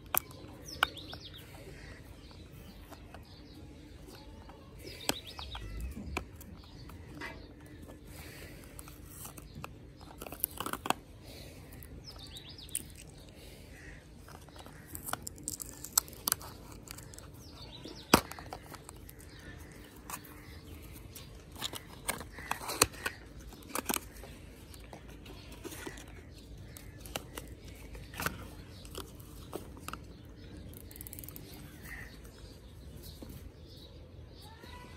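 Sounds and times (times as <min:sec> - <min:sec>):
cardboard box clicks and crinkles: 0:02.7 - 0:13.3, 0:14.2 - 0:33.6.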